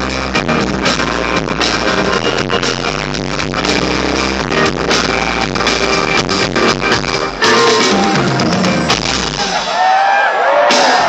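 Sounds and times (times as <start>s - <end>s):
live electronic dance music: 0.0s - 11.0s.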